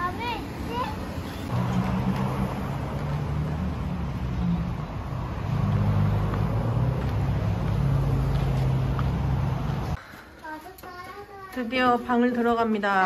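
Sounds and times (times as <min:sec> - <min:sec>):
street traffic engine drone: 0:00.0 - 0:10.4.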